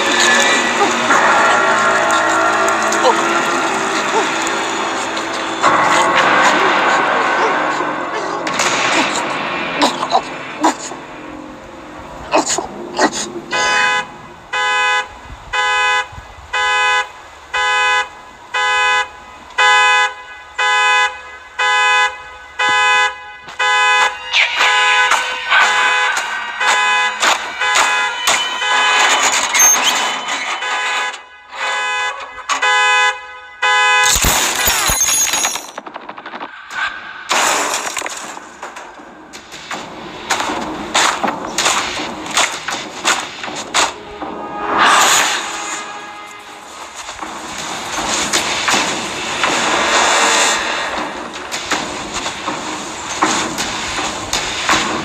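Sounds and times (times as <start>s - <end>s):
car horn honking: 0.0s - 12.3s, 13.4s - 35.7s, 43.9s - 51.4s
loud crash with breaking: 0.0s - 12.9s, 24.2s - 31.3s, 34.0s - 55.0s
low rumble: 0.0s - 15.6s, 35.8s - 55.0s
noisy film sound effects: 0.0s - 55.0s.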